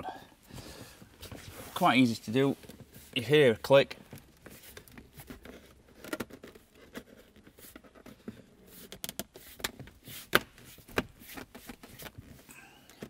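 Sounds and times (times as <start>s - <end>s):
soft handling scrapes: 0.4s - 12.5s.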